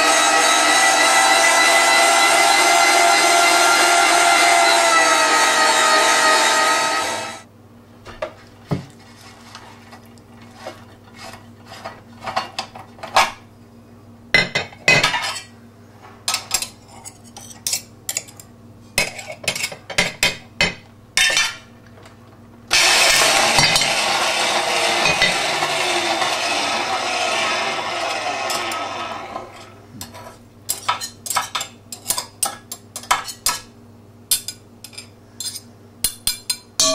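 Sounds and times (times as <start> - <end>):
meat grinder motor running: 0.0 - 7.4, 22.7 - 29.6.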